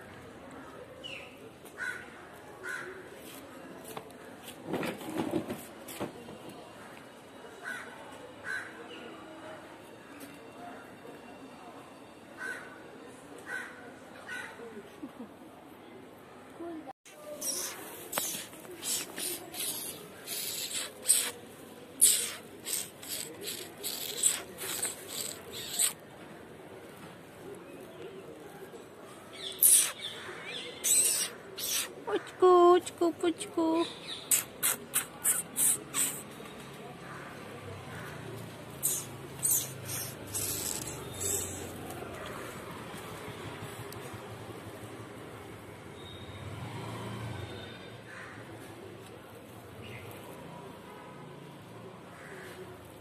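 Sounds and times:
crows cawing: 0:01.8 - 0:03.0, 0:12.4 - 0:12.8.

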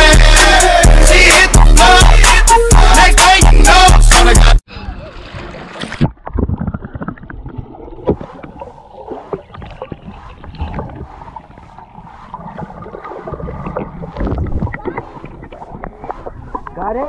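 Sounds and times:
water splashing: 0:04.7 - 0:17.0
muffled underwater bubbling: 0:05.0 - 0:17.0.

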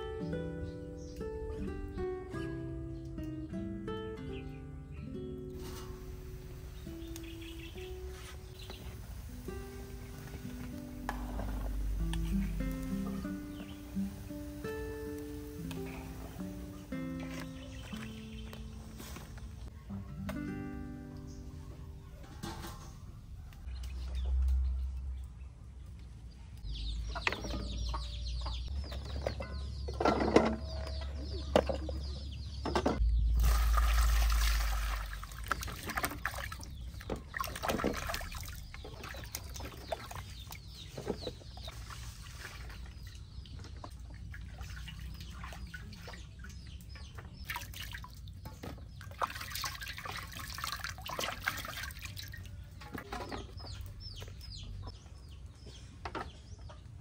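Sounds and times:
hands washing vegetables in water: 0:05.6 - 0:19.7, 0:33.1 - 0:54.8
rush of water: 0:33.3 - 0:40.0.

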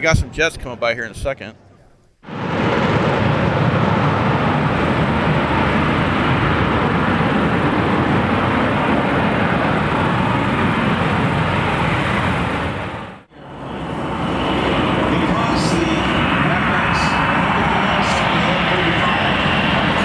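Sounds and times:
fighter jet hovering: 0:02.2 - 0:20.0.

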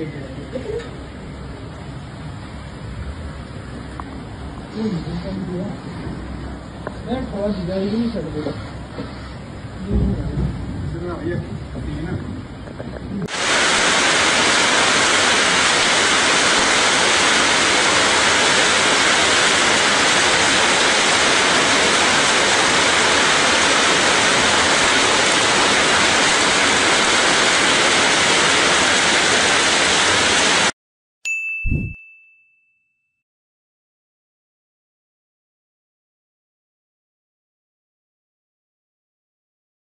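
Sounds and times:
rain and hail on metal roof: 0:13.2 - 0:30.7
short ding: 0:31.3 - 0:33.2.

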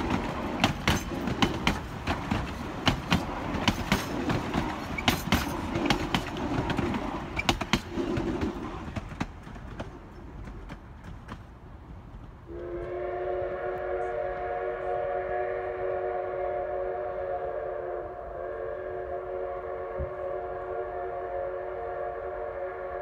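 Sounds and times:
train wheels clicking on rails: 0:00.0 - 0:13.0.

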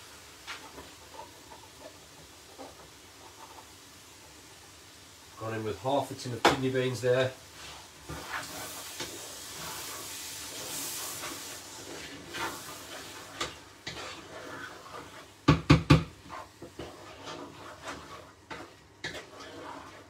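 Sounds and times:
stew bubbling in a saucepan: 0:00.0 - 0:20.0
wooden spoon scraping a pan: 0:00.1 - 0:03.8, 0:05.4 - 0:20.0.

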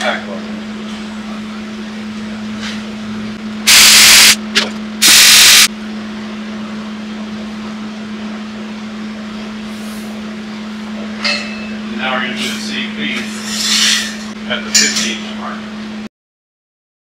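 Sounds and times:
steady low hum: 0:00.0 - 0:16.1
welding arc bursts: 0:03.7 - 0:04.4, 0:05.0 - 0:05.7.

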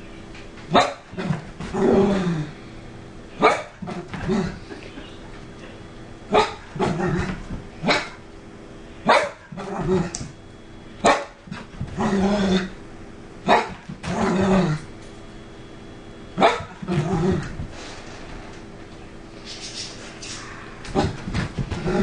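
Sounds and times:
dog barking: 0:00.7 - 0:01.1, 0:03.4 - 0:03.8, 0:06.3 - 0:06.6, 0:07.8 - 0:08.2, 0:09.0 - 0:09.6, 0:11.0 - 0:11.4, 0:13.5 - 0:13.8, 0:16.4 - 0:16.8
dog growling: 0:01.2 - 0:02.6, 0:03.8 - 0:04.8, 0:06.7 - 0:07.6, 0:09.5 - 0:10.3, 0:11.5 - 0:12.8, 0:14.0 - 0:14.9, 0:16.5 - 0:17.7, 0:20.4 - 0:22.0.

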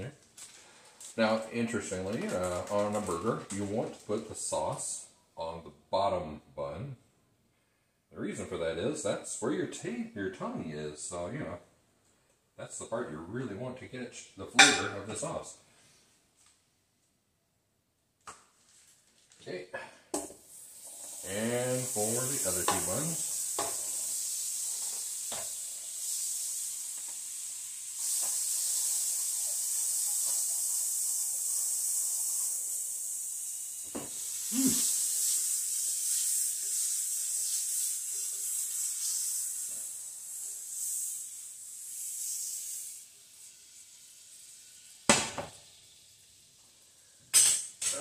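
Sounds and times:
buns sizzling in butter: 0:00.0 - 0:05.1, 0:18.2 - 0:48.0.

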